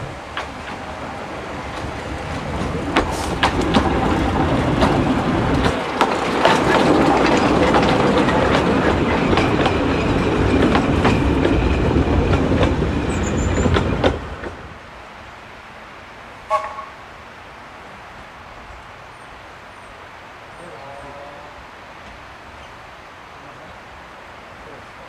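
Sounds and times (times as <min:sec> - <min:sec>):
train wheels clicking over rail joints: 0:00.0 - 0:14.8.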